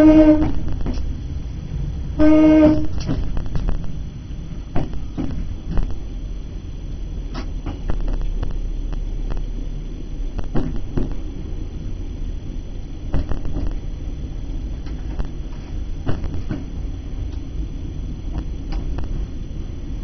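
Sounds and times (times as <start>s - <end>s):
train rumbling: 0.0s - 20.0s.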